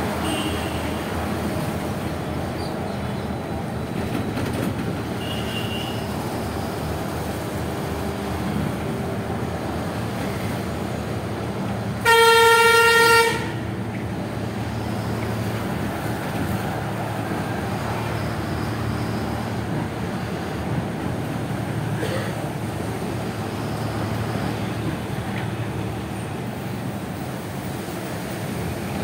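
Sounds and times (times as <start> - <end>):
vehicle road and engine noise: 0.0 - 29.0
vehicle horn: 0.2 - 1.0, 5.2 - 6.1, 12.0 - 13.6.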